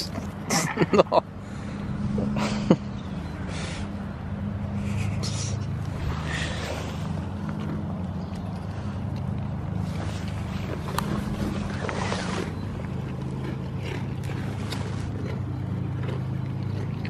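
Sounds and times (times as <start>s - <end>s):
steady low hum: 0.0s - 17.0s
goat crunching crackers: 4.8s - 17.0s.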